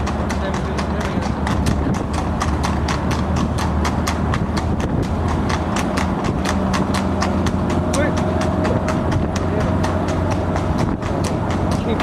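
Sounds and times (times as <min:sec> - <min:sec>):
horse hooves trotting on tarmac: 0:00.0 - 0:12.0.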